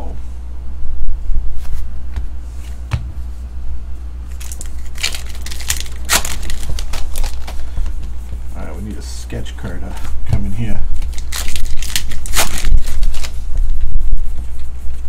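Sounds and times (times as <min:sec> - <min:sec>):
steady low hum: 0:00.0 - 0:15.0
foil wrapper crinkling and tearing: 0:04.3 - 0:08.1, 0:10.9 - 0:13.8.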